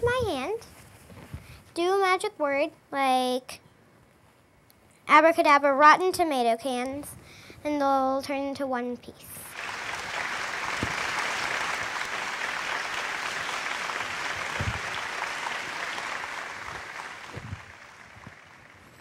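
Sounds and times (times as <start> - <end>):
audience applause: 9.5 - 19.0.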